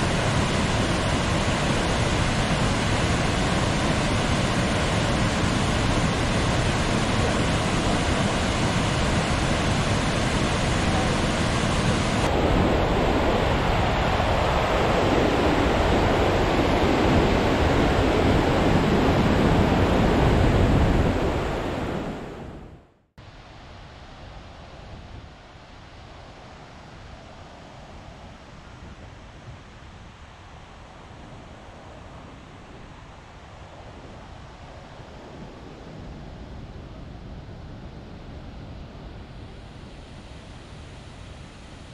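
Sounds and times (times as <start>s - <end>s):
waterfall rushing water: 0.0s - 22.1s.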